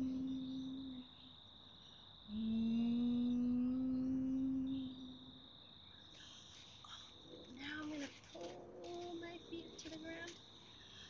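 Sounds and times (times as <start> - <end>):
woman humming: 0.0 - 1.3, 2.3 - 5.4, 6.8 - 10.3
crickets chirping: 0.0 - 11.0.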